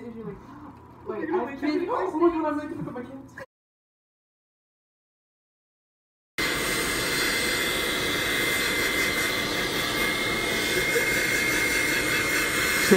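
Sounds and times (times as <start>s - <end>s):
hair dryer blowing: 6.4s - 12.9s.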